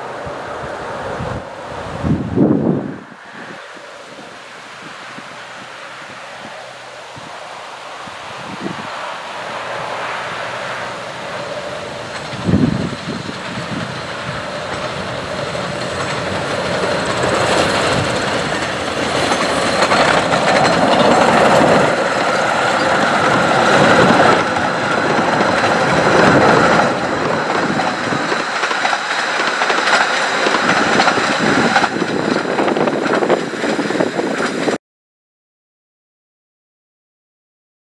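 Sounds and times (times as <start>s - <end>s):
steam locomotive passing: 0.0s - 34.8s
wheels rattling over track: 0.0s - 34.8s.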